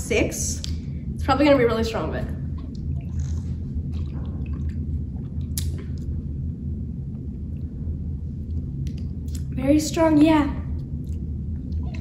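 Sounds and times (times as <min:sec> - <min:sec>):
low background hum: 0:00.0 - 0:12.0
sipping and swallowing: 0:02.4 - 0:06.4.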